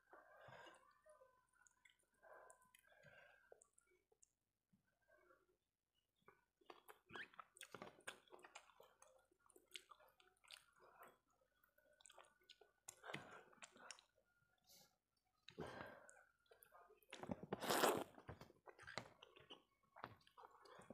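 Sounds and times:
wet chewing and lip smacks: 6.6s - 11.2s, 12.0s - 14.2s, 15.5s - 20.9s.

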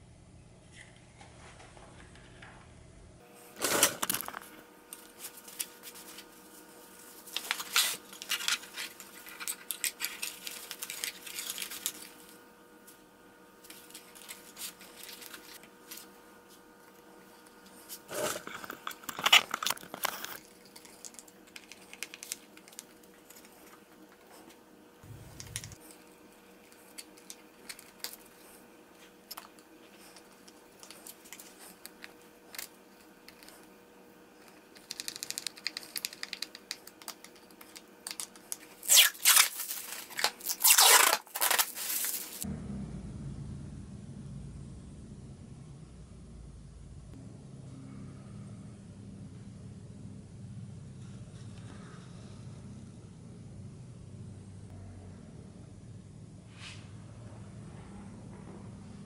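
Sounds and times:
fabric and plastic rustling: 38.5s - 42.4s.

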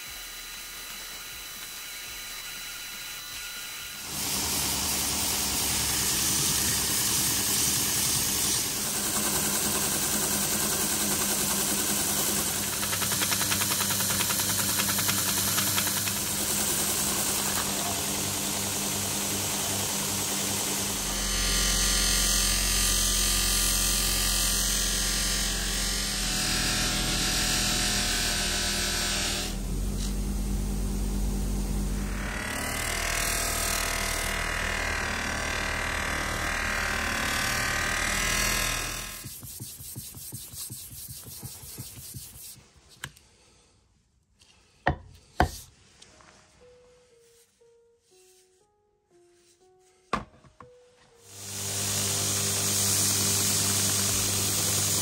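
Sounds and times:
polishing wheel spinning: 0.0s - 21.0s, 35.0s - 42.6s, 51.3s - 55.0s
belt grinder on metal: 0.0s - 30.1s, 32.0s - 42.6s, 51.3s - 55.0s
hand sanding with abrasive paper: 1.6s - 18.1s, 39.0s - 43.0s.

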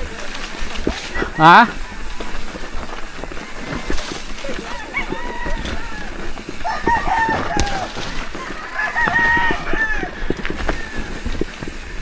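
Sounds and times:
bike clattering on rough trail: 0.0s - 12.0s
rooster crowing: 3.4s - 11.3s.

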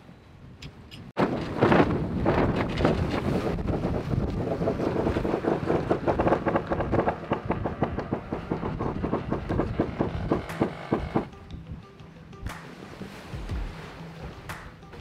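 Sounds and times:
sail flapping in wind: 0.7s - 11.3s.

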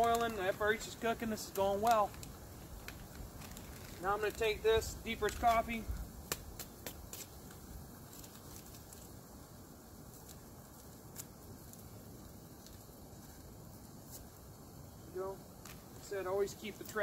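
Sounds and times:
packet clicks and crinkles: 0.0s - 9.1s
faint hiss: 0.0s - 17.0s.

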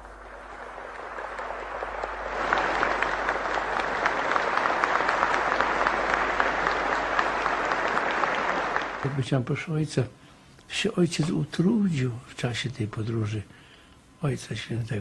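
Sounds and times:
crowd clapping: 0.0s - 9.7s.

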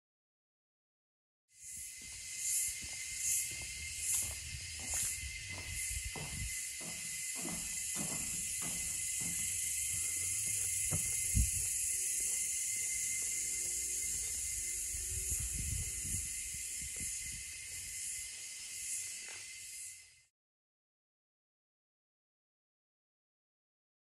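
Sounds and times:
insect chorus hissing: 1.5s - 20.3s
footsteps on wooden floor: 2.8s - 11.6s.

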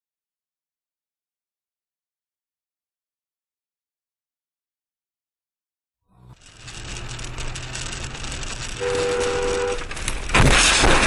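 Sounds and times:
car interior driving noise: 6.1s - 11.0s
loud collision crash: 7.7s - 11.0s
two-tone car horn: 8.6s - 10.0s.

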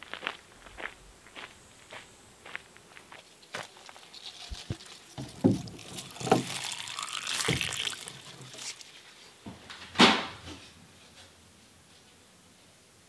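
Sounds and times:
water running from tap: 5.2s - 8.8s.

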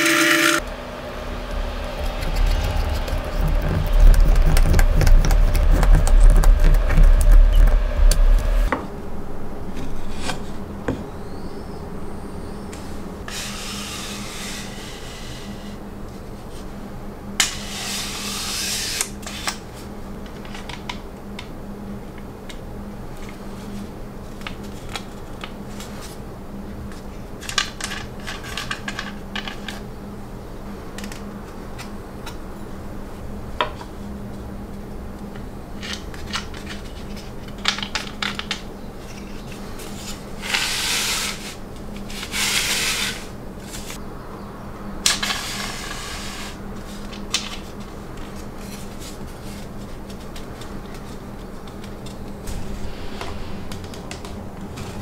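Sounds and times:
low steady hum: 0.0s - 14.0s, 50.6s - 55.0s
wood scraping on wood: 1.3s - 8.7s.

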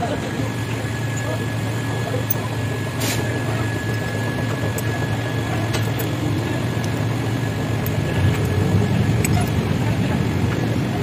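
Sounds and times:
low mechanical drone: 0.0s - 11.0s
light clicks of metal parts: 5.6s - 7.0s.

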